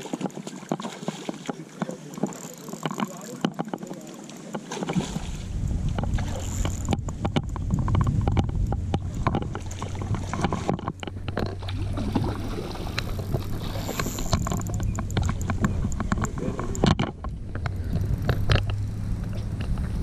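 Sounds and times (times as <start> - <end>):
fish splashing at the surface: 0.0 - 6.9, 11.4 - 14.3
landing net into water: 0.0 - 20.0
spinning reel clicking: 2.1 - 4.2, 6.3 - 7.6, 13.0 - 15.6
steady low hum: 5.4 - 20.0.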